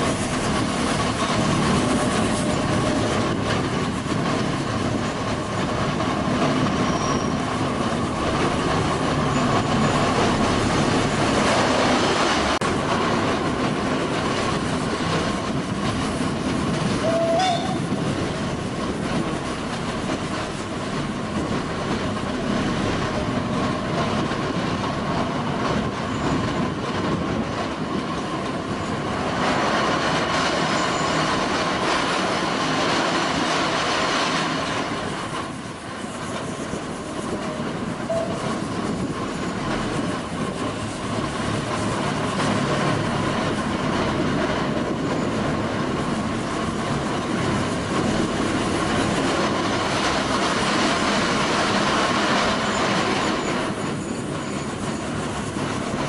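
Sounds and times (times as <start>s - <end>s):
train wheels on rails: 0.0s - 56.0s
high wheel squeal: 6.7s - 7.7s, 17.0s - 18.0s.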